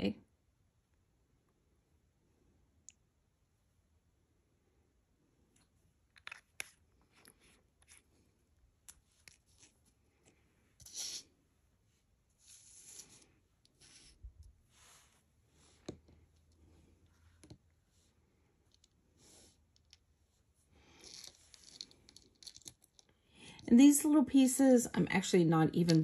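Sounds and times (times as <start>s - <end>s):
short rubbing scrapes: 10.8s - 11.4s.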